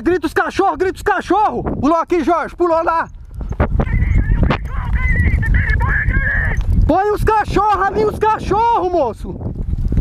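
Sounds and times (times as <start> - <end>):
heavy low rumble: 3.3 - 8.2.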